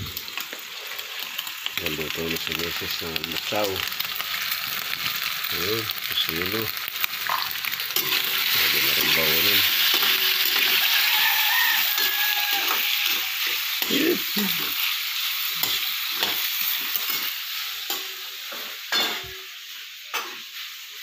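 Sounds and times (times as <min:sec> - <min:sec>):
food sizzling in wok: 0:00.0 - 0:21.0
metal spatula scraping wok: 0:07.9 - 0:14.0.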